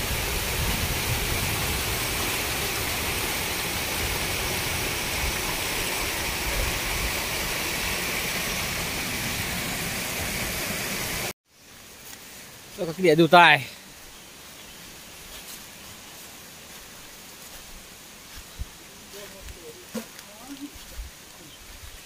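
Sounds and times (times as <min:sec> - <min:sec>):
waterfall rushing water: 0:00.0 - 0:11.3.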